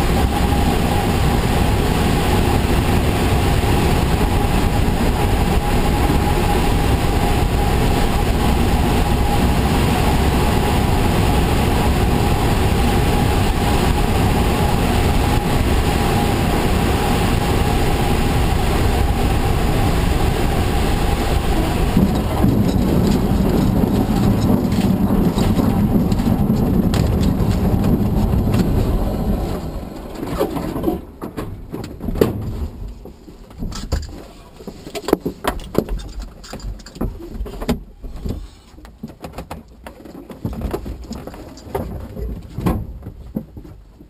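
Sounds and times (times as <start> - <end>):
air rushing over glider: 0.0 - 31.2.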